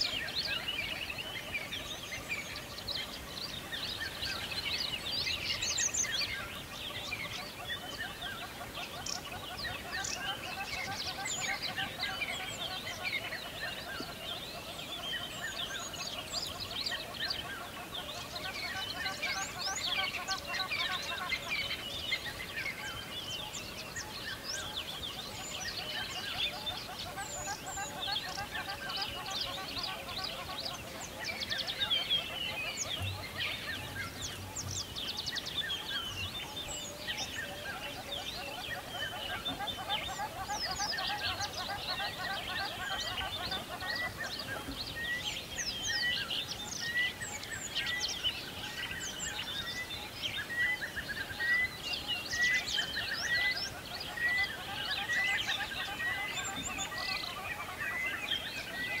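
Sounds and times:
birds chirping in chorus: 0.0 - 59.0.

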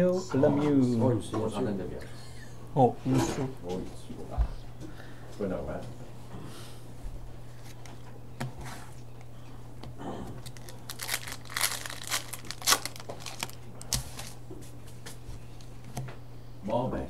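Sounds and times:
wrapper tearing and crinkling: 10.4 - 14.4.

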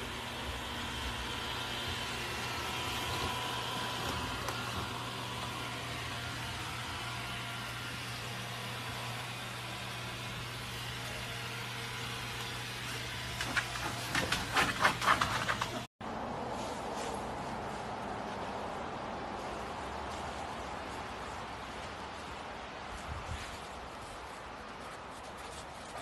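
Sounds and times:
robot vacuum motor whirring: 0.0 - 14.2.

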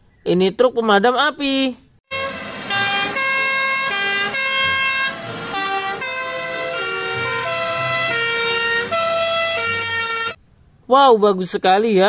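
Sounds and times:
fire engine sirens: 2.1 - 10.4.

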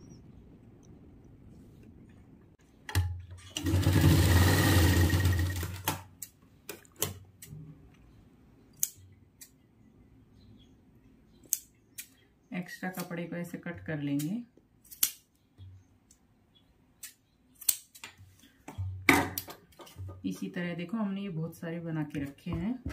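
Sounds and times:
sewing machine stitching: 3.5 - 5.9
scissors snipping thread: 14.1 - 15.3, 17.0 - 18.1.

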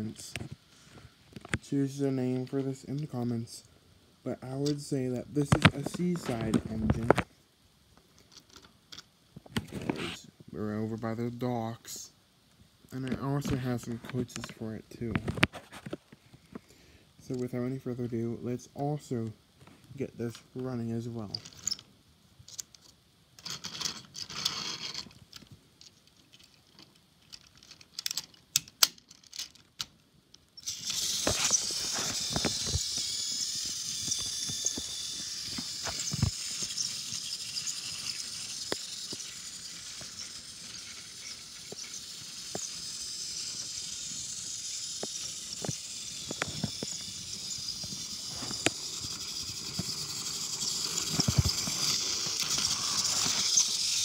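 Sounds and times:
toy train motor whirring: 21.0 - 21.9, 22.5 - 25.5, 26.2 - 54.0
toy train clicking on plastic track: 22.5 - 25.5, 30.6 - 54.0.

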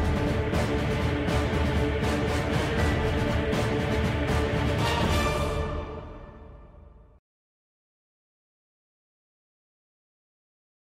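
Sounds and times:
music: 0.0 - 7.2.

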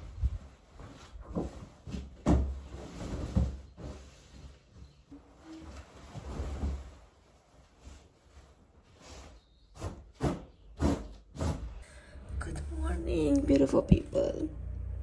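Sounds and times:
bedding rustling: 0.0 - 11.8.

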